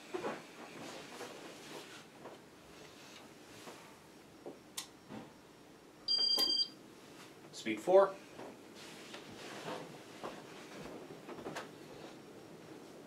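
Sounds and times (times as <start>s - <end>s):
ceiling fan running faintly: 0.0s - 13.0s
short electronic beep: 6.1s - 6.7s.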